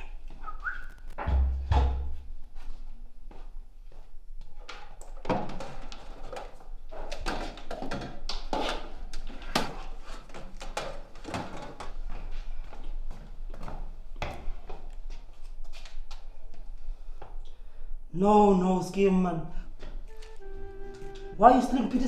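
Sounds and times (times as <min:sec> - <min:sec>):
objects knocking and clattering: 0:04.8 - 0:12.0.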